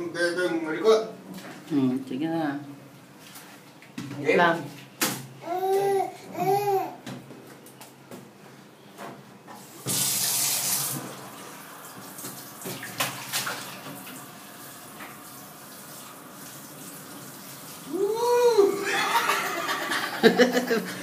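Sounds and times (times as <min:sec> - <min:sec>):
shower head spraying water: 0:09.8 - 0:11.3.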